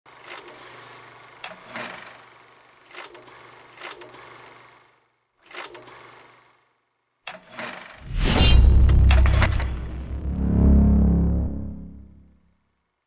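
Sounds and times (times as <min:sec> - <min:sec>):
film projector whirring: 0:00.1 - 0:07.9.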